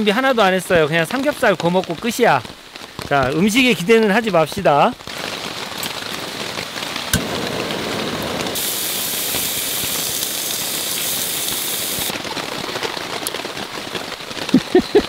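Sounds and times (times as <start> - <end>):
heavy rain on a tarp: 0.0 - 15.0
loud high hiss: 7.1 - 12.2.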